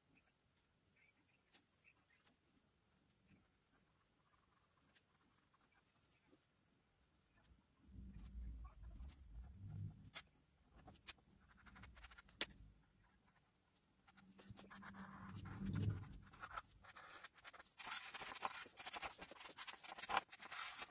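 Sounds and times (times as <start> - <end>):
pencil scratching on paper: 10.0 - 20.9
pencil tapping: 17.4 - 20.9.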